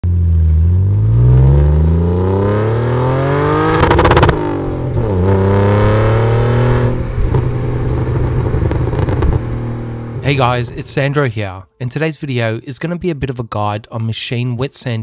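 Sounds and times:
car engine accelerating hard: 0.0 - 10.5
exhaust pops crackling: 3.5 - 11.1.

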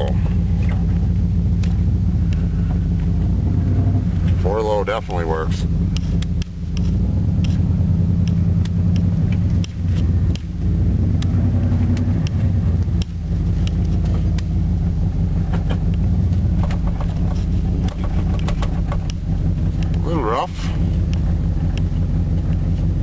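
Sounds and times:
truck engine running under load: 0.0 - 23.0
rattles and knocks: 15.4 - 20.1.

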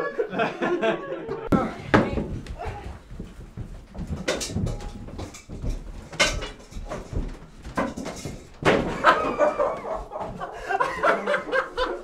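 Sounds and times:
door clunks and knocks: 4.0 - 9.2.

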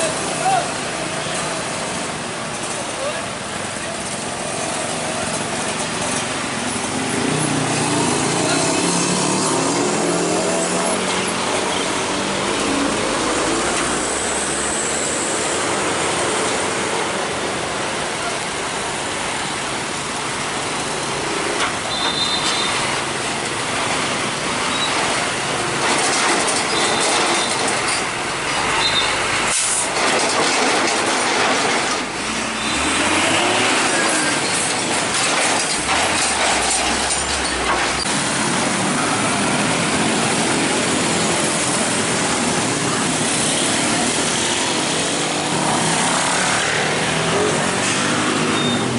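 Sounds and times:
motorcycles running: 0.0 - 14.7, 31.4 - 48.9
truck engines: 0.0 - 48.9.

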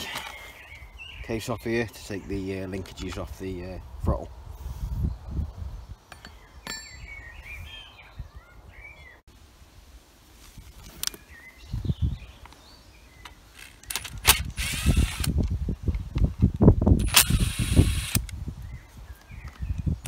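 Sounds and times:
birds chirping: 0.0 - 9.3, 11.0 - 15.2, 18.0 - 20.0
tools clicking and knocking: 6.1 - 7.0
cordless drill running: 14.3 - 15.4, 17.0 - 18.2.

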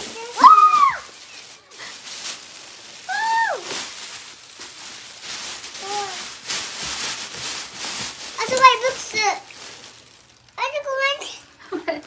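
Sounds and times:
child exclaiming: 0.0 - 1.1, 3.1 - 3.7, 10.6 - 11.4
plastic bag crinkling: 0.0 - 12.0.

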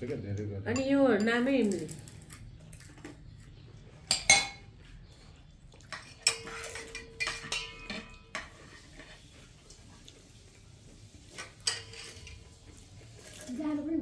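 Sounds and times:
spoons clinking on ceramic bowls: 0.7 - 2.0, 4.1 - 4.7, 5.9 - 9.2, 11.4 - 13.6.

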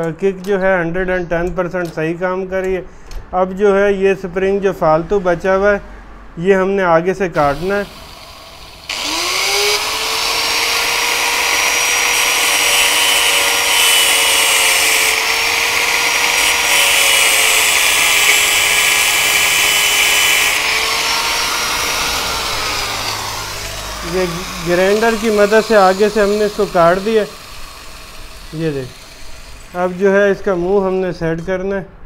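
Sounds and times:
angle grinder motor whine: 7.4 - 30.7
metal grinding hiss: 7.4 - 31.0.

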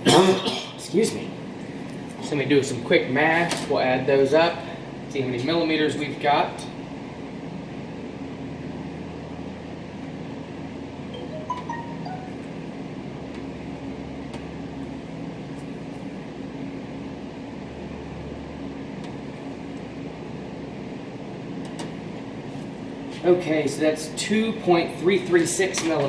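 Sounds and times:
air conditioning hum: 0.0 - 26.0.

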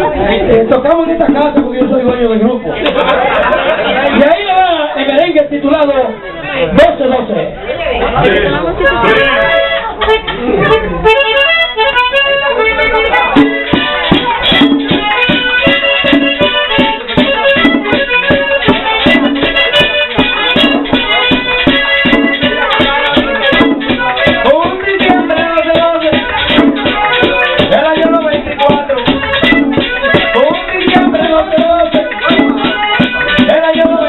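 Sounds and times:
rhythm section driving beat: 0.0 - 6.0, 8.2 - 34.0
accordion: 8.0 - 34.0.

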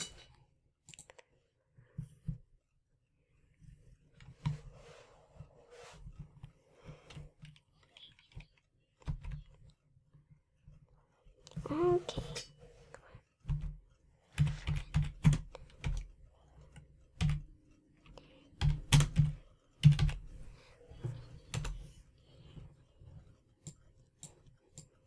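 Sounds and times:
typing on computer keyboard: 7.0 - 9.8, 13.4 - 20.4, 21.4 - 22.0.

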